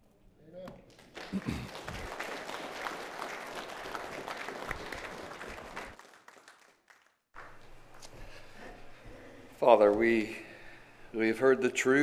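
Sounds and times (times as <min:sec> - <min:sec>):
crowd applauding: 0:00.9 - 0:07.6.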